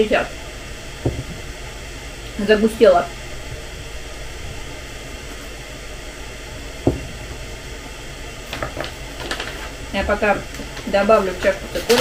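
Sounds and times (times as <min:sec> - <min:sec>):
kettle hissing on stove: 0:00.0 - 0:12.0
mug knocking on table: 0:01.0 - 0:01.3, 0:06.8 - 0:07.2.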